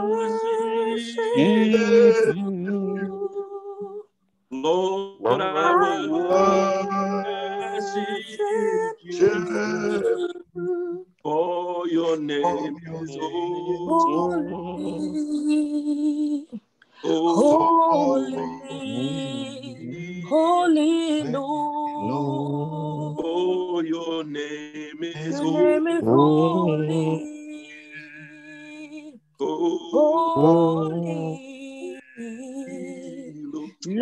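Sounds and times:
man singing: 0.0 - 3.3, 4.6 - 15.4, 17.0 - 28.8, 29.4 - 34.0.

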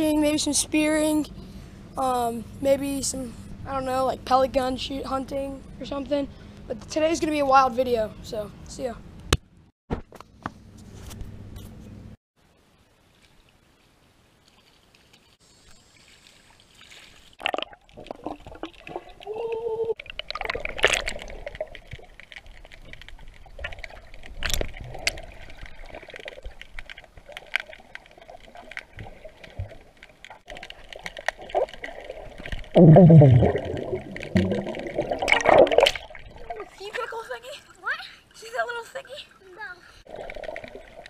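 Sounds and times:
underwater water sloshing and bubbling: 13.1 - 41.0
loud low gurgle: 31.5 - 36.7.

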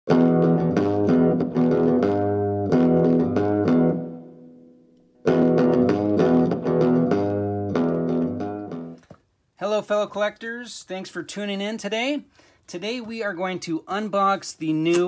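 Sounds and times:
plucked guitar over bass line: 0.1 - 9.0.

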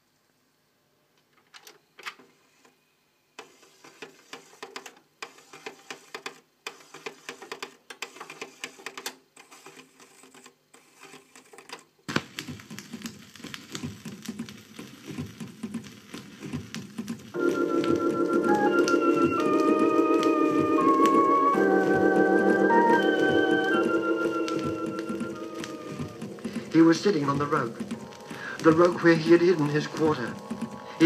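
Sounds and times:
vinyl record crackle: 12.1 - 31.0.

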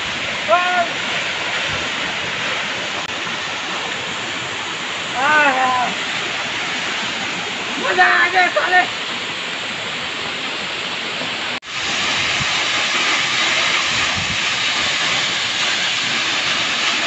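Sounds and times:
waterfall pouring onto rocks: 0.0 - 6.9, 11.6 - 17.0.

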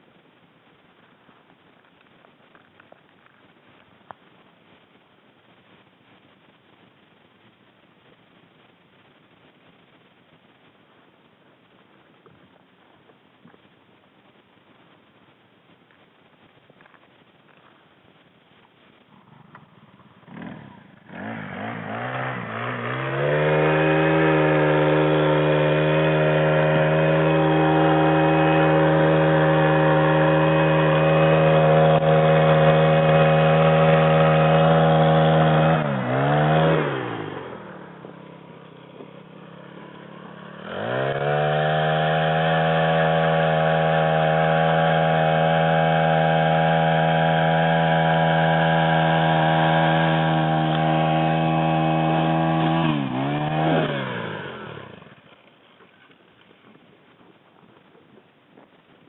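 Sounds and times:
ice auger engine revving: 19.3 - 56.2.

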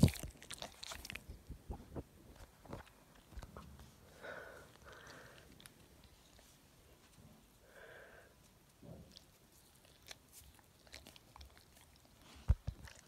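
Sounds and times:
soft breathy sounds: 1.5 - 9.8
dog sniffing and mouthing: 8.4 - 13.0.

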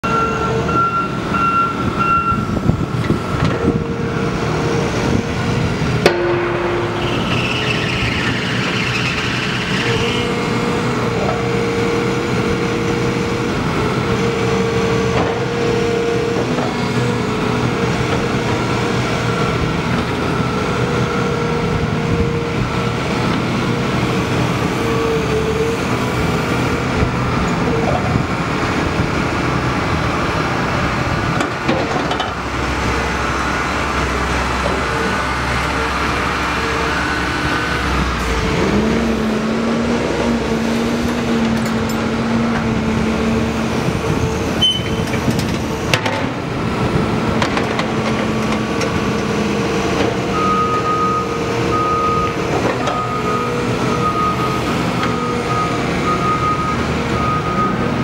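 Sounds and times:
hydraulic whine: 0.0 - 11.6, 31.6 - 47.9
diesel engine running under load: 0.0 - 58.0.

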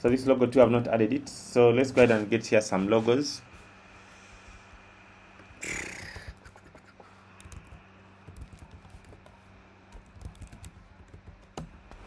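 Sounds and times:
keyboard typing: 7.4 - 9.3, 9.9 - 11.7.

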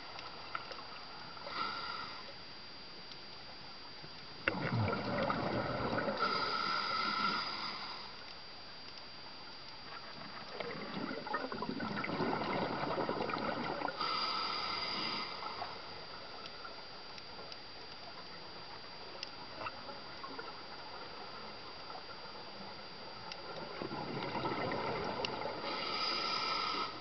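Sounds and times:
faint clicks: 0.0 - 1.4, 2.3 - 4.6, 8.2 - 10.7, 16.4 - 20.5
underwater water noise: 0.0 - 27.0
regulator inhalation hiss: 1.4 - 2.4, 6.2 - 8.2, 13.9 - 16.0, 25.6 - 27.0
exhaled bubbles burbling: 4.4 - 6.4, 9.9 - 14.0, 23.5 - 25.8.

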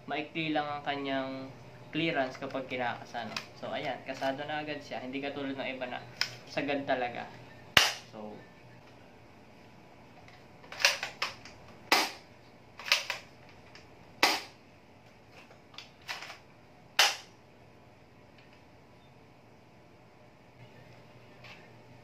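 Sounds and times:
airsoft gun shots: 7.8 - 8.1, 11.9 - 12.2, 14.2 - 14.6, 17.0 - 17.3.

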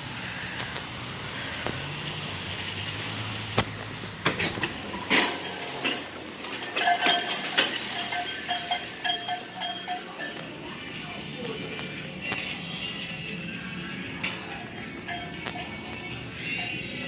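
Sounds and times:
glass doors clattering: 4.2 - 10.6
store music with short repeated notes: 6.4 - 17.0.

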